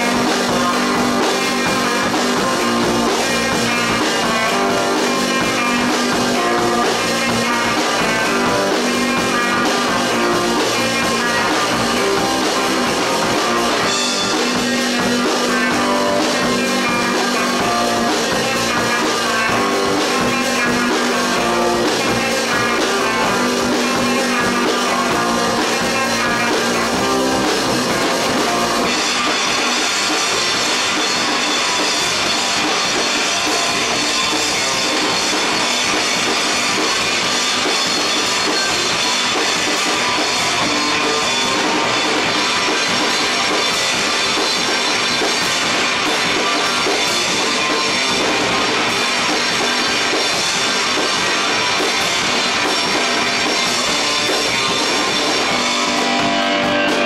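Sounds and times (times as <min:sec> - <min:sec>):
rock band playing live: 0:00.0 - 0:57.0.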